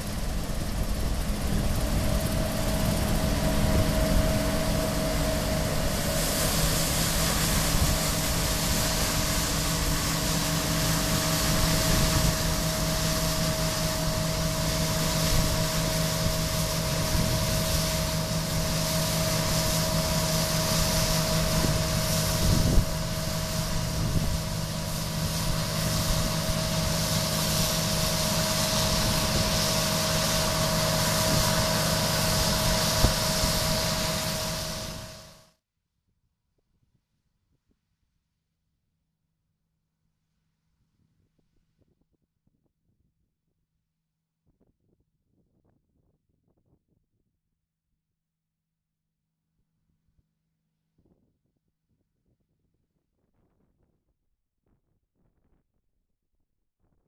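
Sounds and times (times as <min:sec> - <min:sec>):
combine harvester drone: 0:00.0 - 0:35.5.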